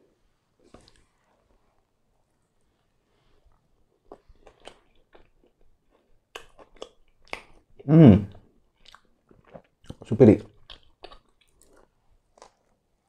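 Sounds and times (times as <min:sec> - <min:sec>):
chewing pizza crust: 0:03.3 - 0:13.0.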